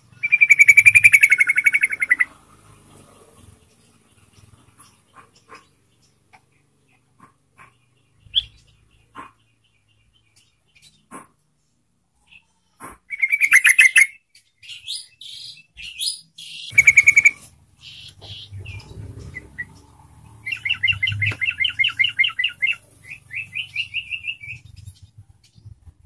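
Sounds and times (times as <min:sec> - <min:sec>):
bird singing bubbling notes: 0:16.7 - 0:24.7.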